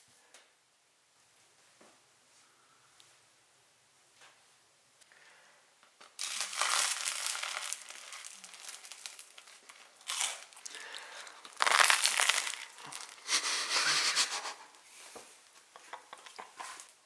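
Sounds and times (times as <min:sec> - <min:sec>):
bread crust crackling and crunching: 0:06.0 - 0:13.6, 0:15.4 - 0:17.0.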